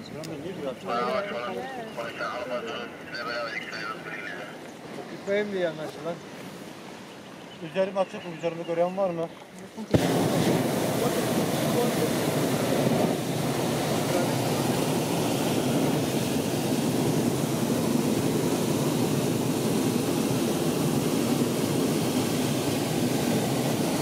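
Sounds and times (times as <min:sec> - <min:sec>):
propane burner blast: 0:09.8 - 0:24.0.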